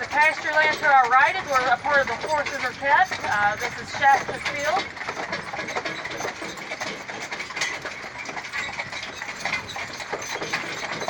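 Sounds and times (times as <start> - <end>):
carriage and harness rattling: 0.0 - 11.0
hooves clip-clopping: 0.0 - 11.0.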